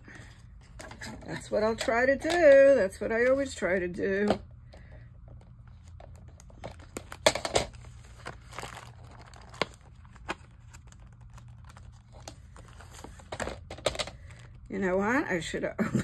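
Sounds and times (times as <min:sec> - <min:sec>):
cardboard package rustling: 0:05.7 - 0:14.7.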